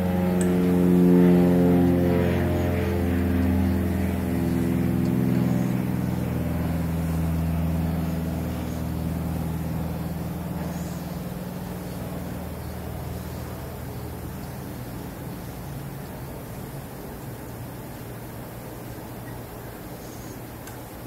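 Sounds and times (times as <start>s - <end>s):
sustained low chords music: 0.0s - 15.5s.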